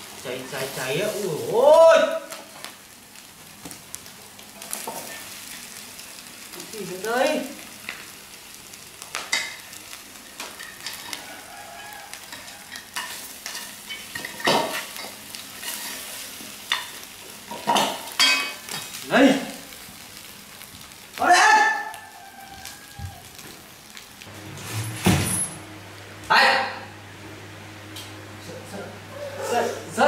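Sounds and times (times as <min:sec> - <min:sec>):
food sizzling in a pot: 0:00.0 - 0:27.0.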